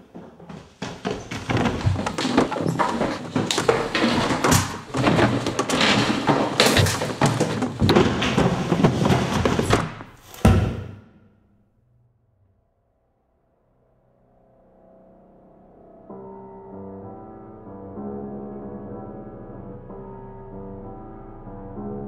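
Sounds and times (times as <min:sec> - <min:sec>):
bumps on wooden stairs: 0:00.0 - 0:11.0
heavy thud: 0:00.5 - 0:11.2.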